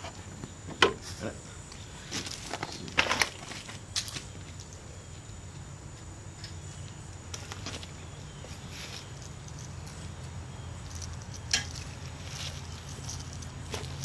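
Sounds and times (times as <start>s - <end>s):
footsteps: 7.3s - 14.0s
handling small tools and screws: 7.3s - 14.0s.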